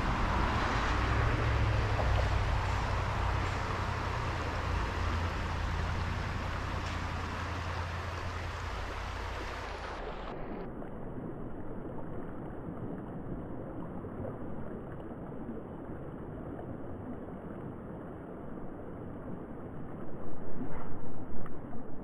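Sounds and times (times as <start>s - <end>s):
mountain stream rushing: 0.0s - 10.6s
low rumble: 0.0s - 22.0s.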